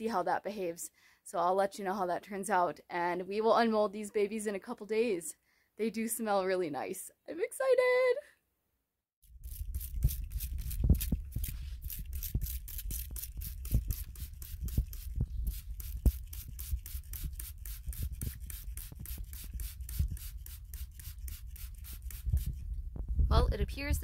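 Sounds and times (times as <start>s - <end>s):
spray bottle hissing: 9.4s - 22.6s.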